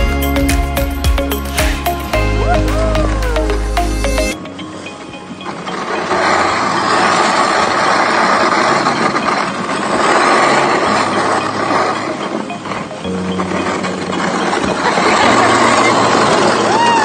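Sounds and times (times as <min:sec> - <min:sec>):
sled runners scraping on snow: 0:05.4 - 0:17.0.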